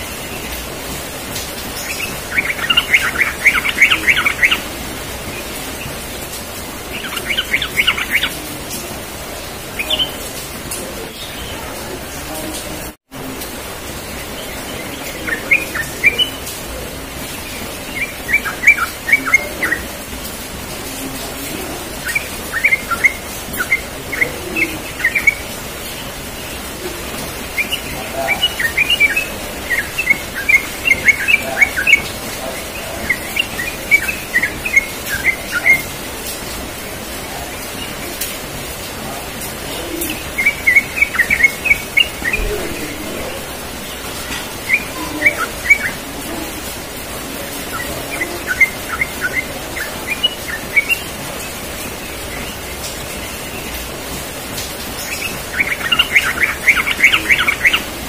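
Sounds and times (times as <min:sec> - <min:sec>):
bird chirping: 0:00.0 - 0:12.7, 0:13.8 - 0:58.0
background hiss: 0:00.0 - 0:58.0.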